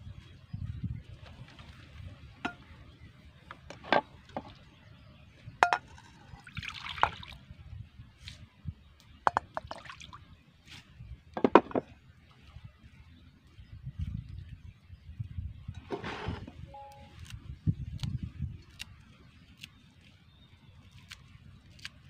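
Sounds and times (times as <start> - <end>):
pottery clinks and knocks: 5.6 - 6.2
water pouring into a dish: 6.4 - 7.3.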